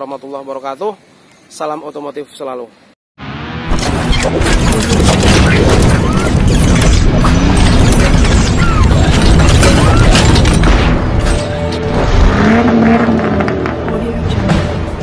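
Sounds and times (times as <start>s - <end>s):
mechanical sound effects: 3.7s - 12.7s
loud cinematic music: 4.7s - 15.0s.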